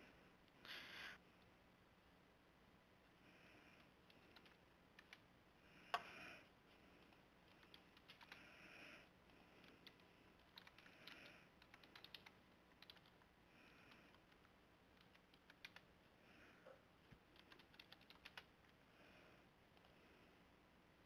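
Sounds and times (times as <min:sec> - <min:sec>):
keyboard typing: 0:03.8 - 0:05.2, 0:07.0 - 0:08.5, 0:09.5 - 0:15.9, 0:17.3 - 0:18.8.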